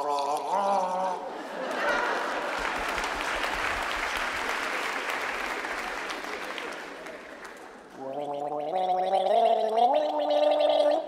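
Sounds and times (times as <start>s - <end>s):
audience applauding: 1.6s - 7.9s.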